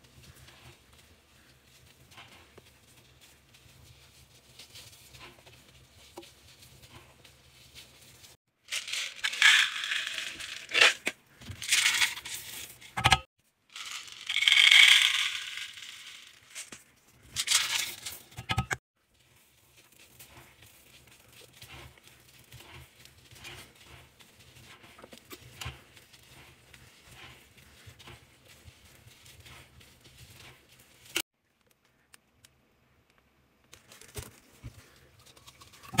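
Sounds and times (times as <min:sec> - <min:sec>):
beads rattling out: 0:08.6 - 0:13.0, 0:13.7 - 0:16.8, 0:17.4 - 0:18.2.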